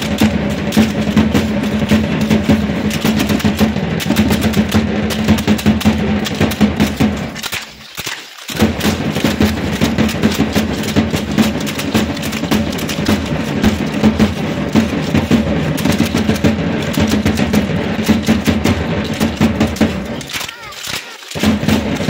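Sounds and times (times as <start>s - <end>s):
fast drum beat: 0.0s - 22.0s
sharp clicks: 2.9s - 13.3s, 15.8s - 22.0s.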